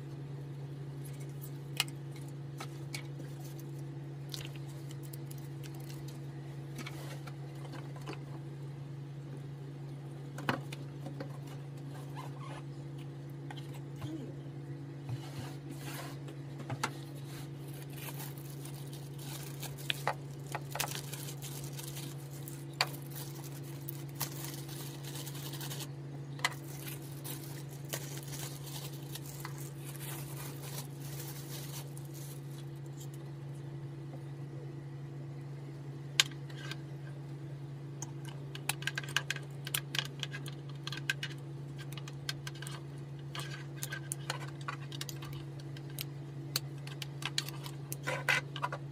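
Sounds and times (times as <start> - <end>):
steady low hum: 0.0 - 48.9
plastic bags rustling: 2.6 - 6.2, 16.9 - 33.1.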